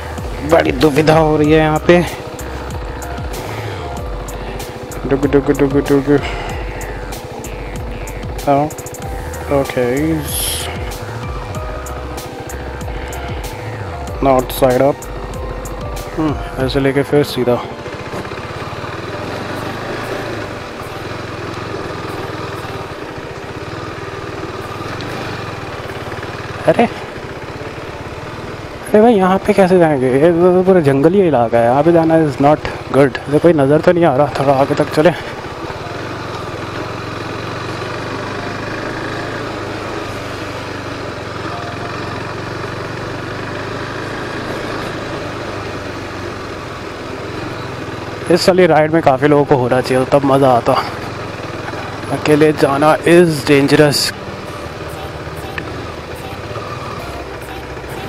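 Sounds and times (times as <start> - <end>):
motorcycle engine running steadily: 0.0 - 58.0.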